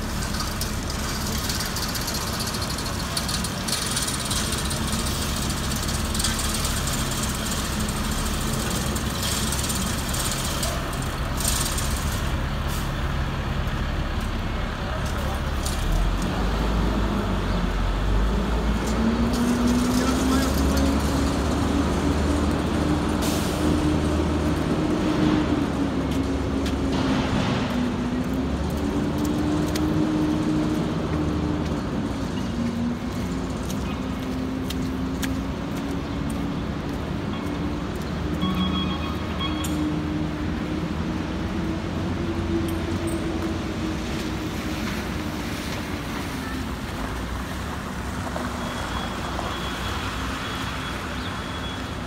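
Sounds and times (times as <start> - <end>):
street hiss: 0.0 - 20.5, 21.9 - 32.1
engine hum: 0.0 - 52.0.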